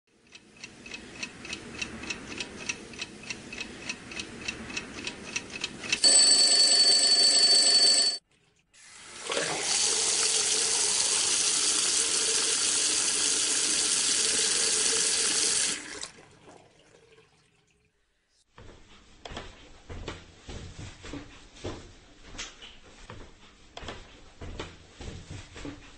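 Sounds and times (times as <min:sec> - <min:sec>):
clock ticking: 0:00.1 - 0:06.6
alarm clock bell ringing: 0:06.0 - 0:08.2.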